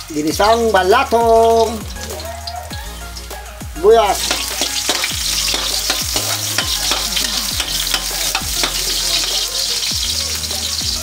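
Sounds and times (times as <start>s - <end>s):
garlic and onion sizzling in oil: 0.0s - 11.0s
metal ladle scraping a wok: 4.2s - 9.9s.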